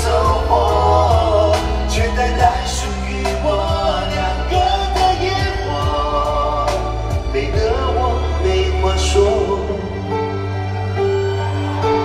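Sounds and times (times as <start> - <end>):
deep bass: 0.0 - 12.0
live pop band music: 0.0 - 12.0.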